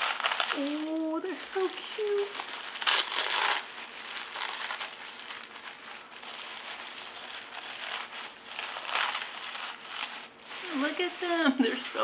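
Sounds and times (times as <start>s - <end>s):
packing wrap crinkling: 0.0s - 12.0s.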